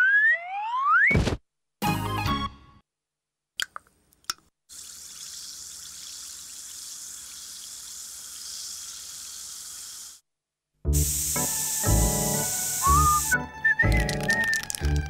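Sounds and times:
steady hiss: 0:11.0 - 0:13.4.

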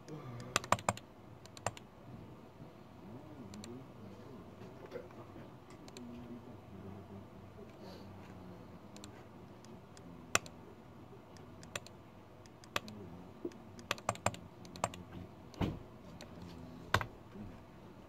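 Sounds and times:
low steady hum: 0:00.0 - 0:18.0
typing on computer keyboard: 0:00.4 - 0:01.8, 0:13.8 - 0:15.0.

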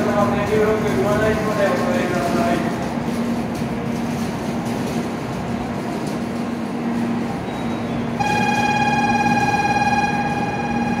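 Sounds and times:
train humming at platform: 0:00.0 - 0:11.0
fast-pulsing electronic departure bell: 0:08.2 - 0:11.0.

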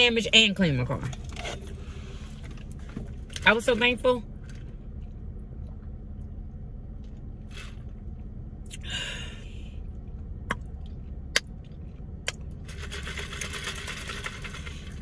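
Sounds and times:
car cabin hum: 0:00.0 - 0:15.0.

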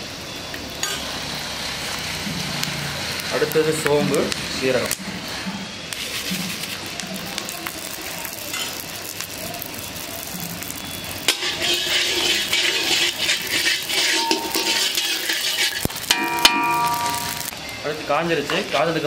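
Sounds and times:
metal spatula scraping spices: 0:05.9 - 0:07.0, 0:10.5 - 0:17.5
metal clinking on iron: 0:13.8 - 0:17.5.

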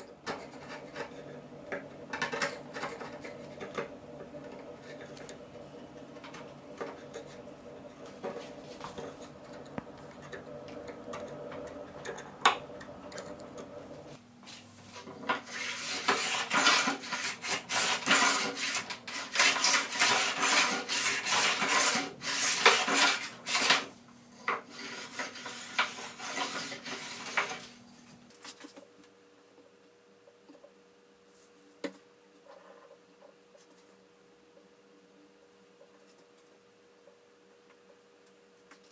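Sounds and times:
hand tool paring wood: 0:15.2 - 0:23.9
rasping cutting strokes: 0:15.4 - 0:23.8.

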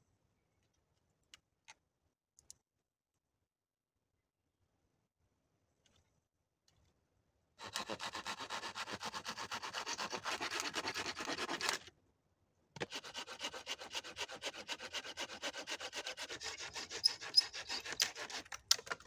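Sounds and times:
hand saw cutting branch: 0:07.6 - 0:11.9, 0:12.8 - 0:18.7.

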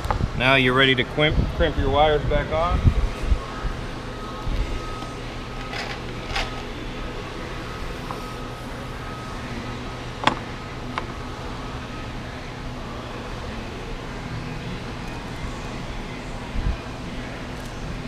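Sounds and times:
low background hum: 0:00.0 - 0:18.0
hands working wires: 0:04.9 - 0:06.8.

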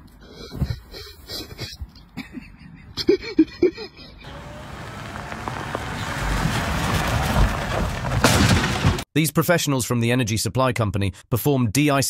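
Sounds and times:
car driving over snowy road: 0:04.2 - 0:09.0.

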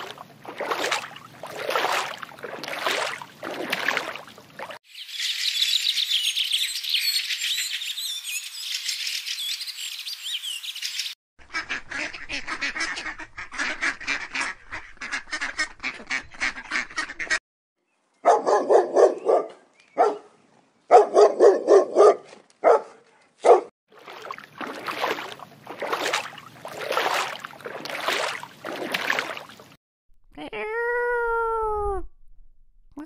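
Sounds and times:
ducks quacking: 0:11.4 - 0:17.4
waterfowl honking: 0:11.4 - 0:17.4.

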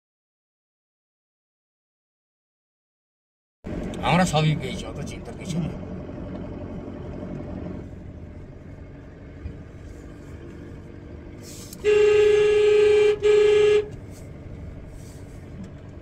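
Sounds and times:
car engine and tyres hum: 0:03.6 - 0:16.0
car horn honking: 0:11.7 - 0:14.0.

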